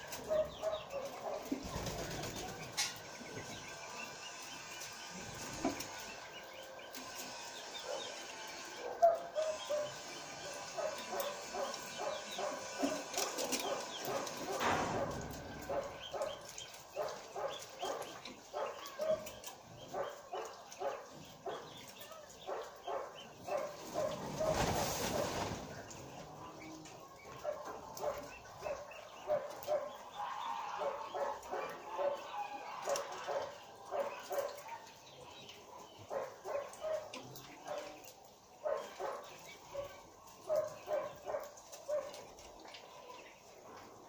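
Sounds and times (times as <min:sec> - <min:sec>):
small birds twittering: 0:00.0 - 0:43.6
dog barking: 0:00.2 - 0:01.6, 0:08.8 - 0:10.0, 0:10.7 - 0:15.1, 0:17.0 - 0:21.7, 0:22.4 - 0:24.6, 0:27.3 - 0:34.9, 0:36.0 - 0:38.0, 0:38.6 - 0:42.2.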